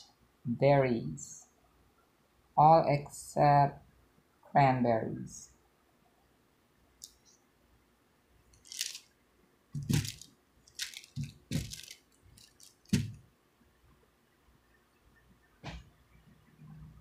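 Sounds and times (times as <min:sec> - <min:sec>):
crinkling crunching rustles: 0:08.6 - 0:09.1, 0:09.8 - 0:13.2
soft thumps: 0:12.9 - 0:13.2.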